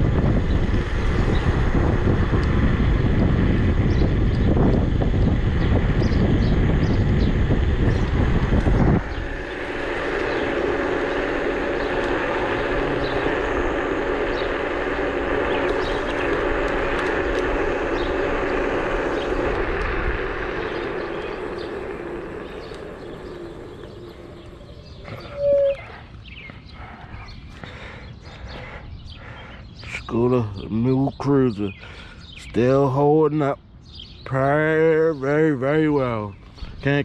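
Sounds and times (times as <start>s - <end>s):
electric scooter motor hum: 0.0s - 29.8s
wind buffeting microphone: 0.0s - 37.0s
loud squeak: 25.0s - 26.0s.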